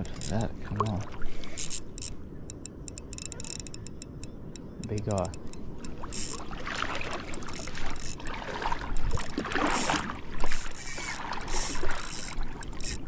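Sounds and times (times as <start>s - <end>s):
water sloshing and splashing: 0.0s - 2.3s, 5.4s - 13.0s.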